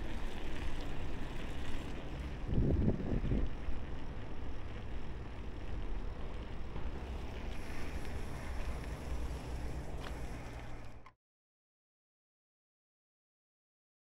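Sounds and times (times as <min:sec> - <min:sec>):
road rumble: 0:00.0 - 0:11.1
wind buffeting microphone: 0:01.3 - 0:04.3.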